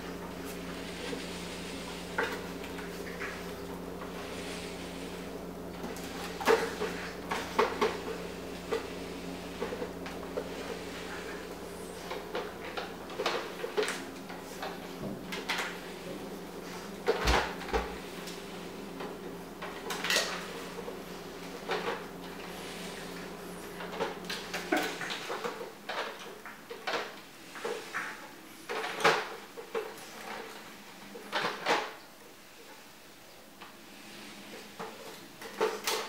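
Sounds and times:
steady low hum: 0.0 - 26.1.

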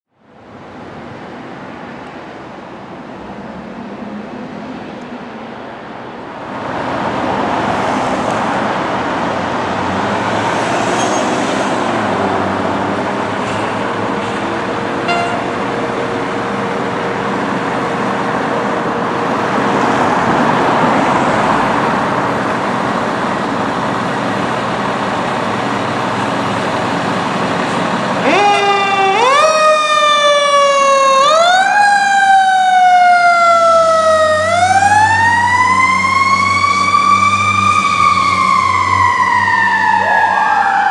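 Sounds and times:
siren wailing: 15.1 - 15.7, 28.2 - 40.9.

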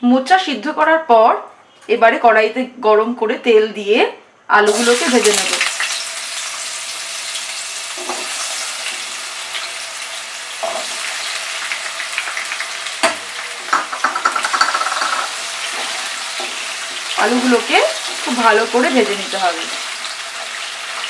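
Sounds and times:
oil crackling: 4.7 - 21.0
potatoes frying in oil: 4.7 - 21.0.

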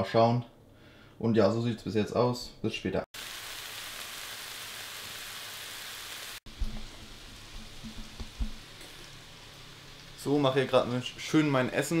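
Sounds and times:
food sizzling in a pan: 3.2 - 12.0.

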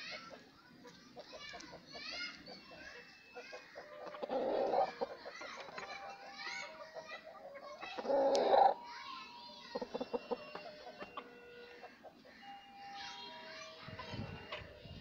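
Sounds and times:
rooster clucking: 3.4 - 6.2.

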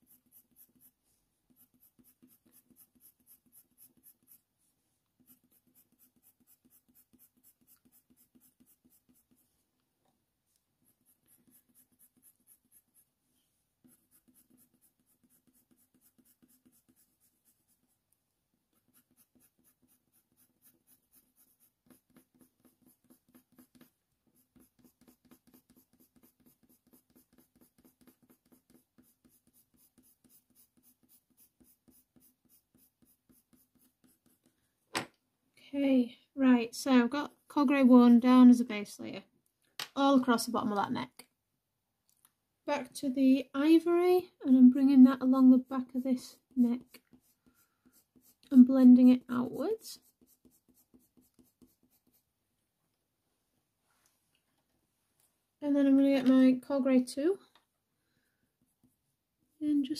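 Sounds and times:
pencil scratching on paper: 0.0 - 9.6, 10.8 - 34.6, 44.7 - 52.3.

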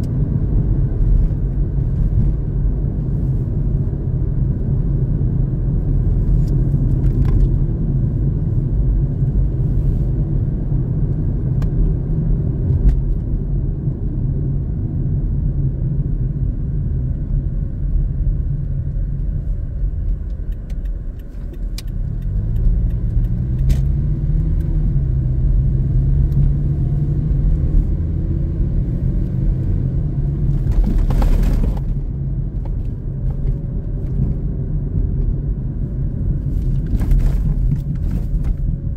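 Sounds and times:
car engine and road noise: 0.0 - 38.9.

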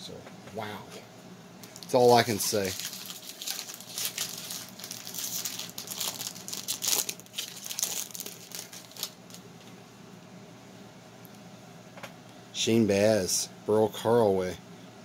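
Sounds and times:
foil wrappers crinkling: 1.6 - 9.5.

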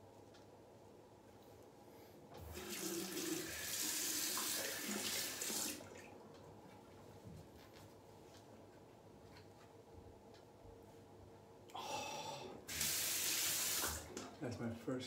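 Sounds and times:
water running into sink: 2.4 - 6.1, 12.7 - 14.1.

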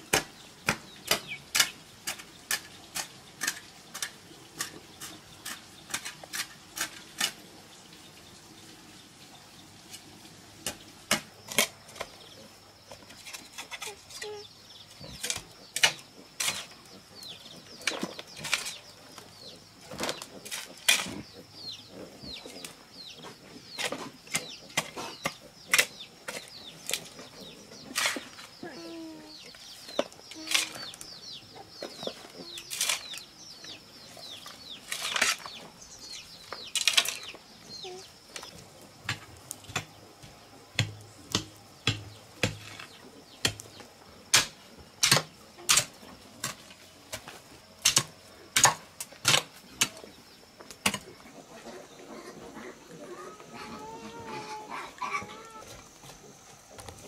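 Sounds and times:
small chirps: 11.5 - 19.6, 23.8 - 40.0
hoe chopping into soil: 40.8 - 50.0.

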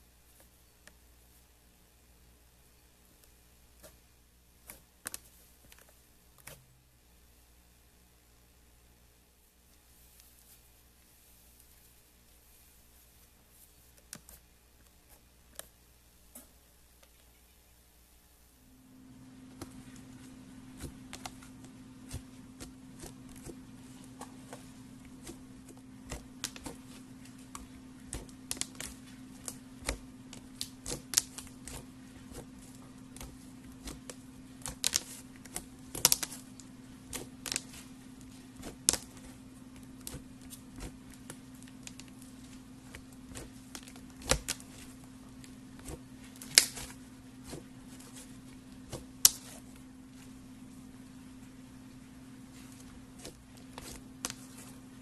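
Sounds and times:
steady low hum: 0.0 - 55.0
slime squishing with clicks and pops: 25.2 - 44.8, 45.4 - 47.6.

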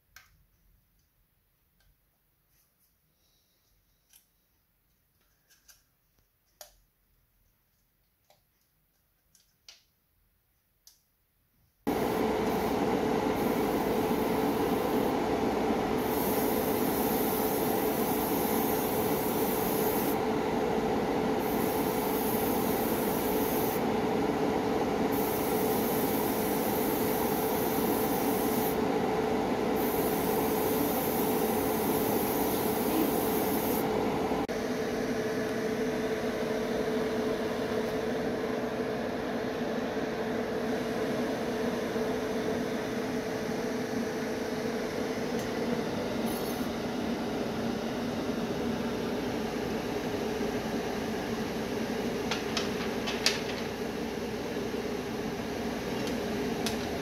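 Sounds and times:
airbrush air hissing: 11.9 - 34.5
compressor humming: 11.9 - 57.0.

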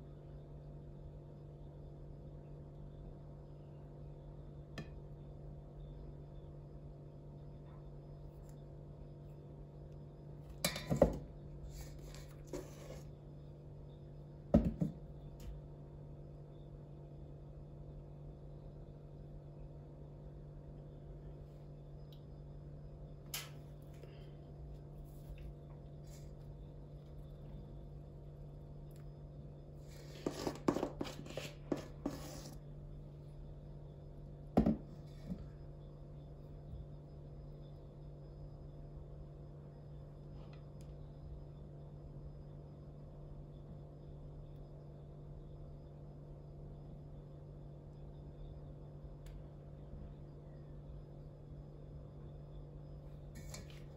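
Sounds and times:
steady low hum: 0.0 - 53.9.

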